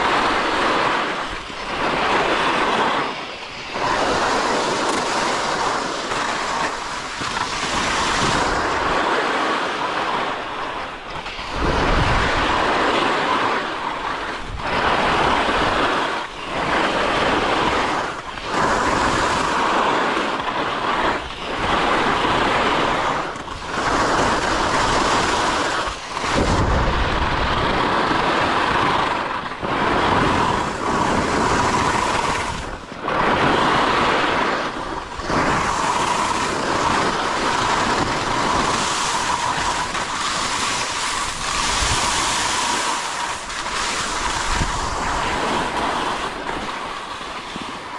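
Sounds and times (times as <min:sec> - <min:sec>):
skis scraping over snow: 0:00.0 - 0:47.9.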